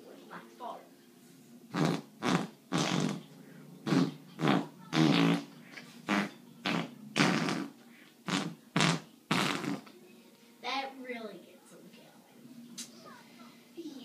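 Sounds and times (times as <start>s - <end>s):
fart noises: 1.7s - 10.0s.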